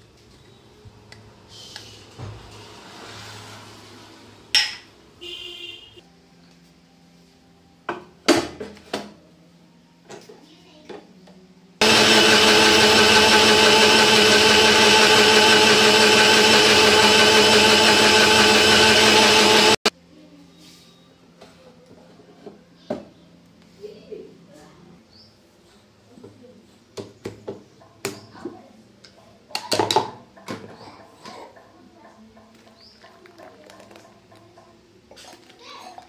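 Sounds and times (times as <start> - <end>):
mixer grinder motor running: 11.8 - 19.9.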